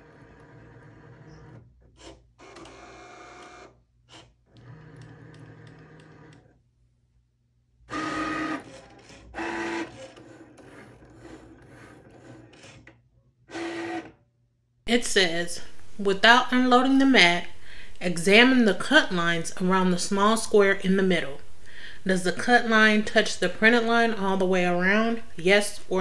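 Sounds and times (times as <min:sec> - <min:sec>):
cutting machine motors: 0:07.9 - 0:12.9, 0:13.5 - 0:14.1.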